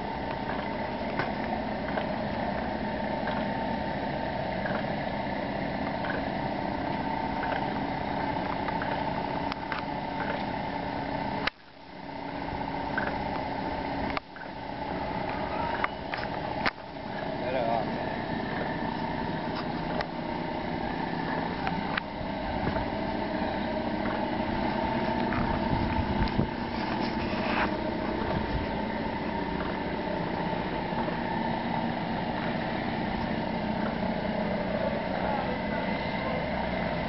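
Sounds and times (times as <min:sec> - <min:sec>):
small motor running: 0:00.0 - 0:11.5, 0:12.3 - 0:37.0.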